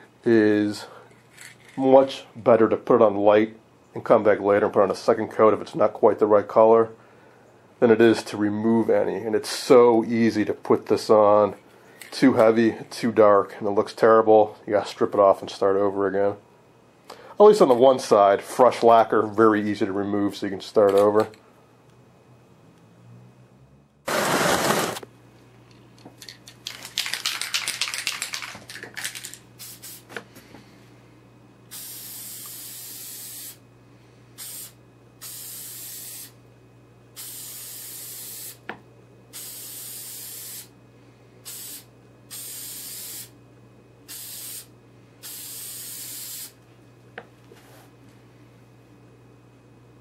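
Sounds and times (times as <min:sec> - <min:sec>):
aerosol can rattling: 0:26.2 - 0:30.0
aerosol spray bursts: 0:29.6 - 0:30.1, 0:31.7 - 0:33.6, 0:34.4 - 0:36.4, 0:37.2 - 0:38.6, 0:39.3 - 0:40.7, 0:41.5 - 0:43.3, 0:44.1 - 0:46.6.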